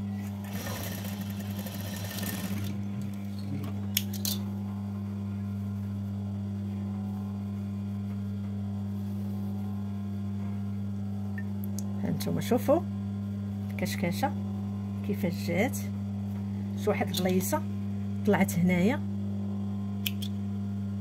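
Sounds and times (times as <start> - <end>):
low electrical hum: 0.0 - 21.0
sewing machine stitching: 0.4 - 2.8.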